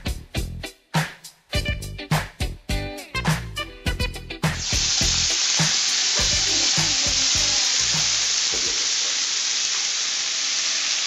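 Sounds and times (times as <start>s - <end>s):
music with regular beat: 0.0s - 8.2s
chicken sizzling in hot oil: 4.4s - 11.0s.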